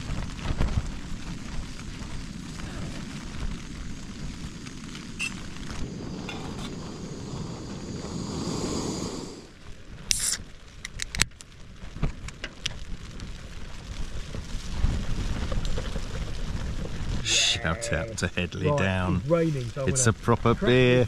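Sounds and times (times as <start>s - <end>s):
gas stove burner rushing: 5.2s - 9.5s
short hiss: 5.2s - 9.5s, 10.1s - 10.4s.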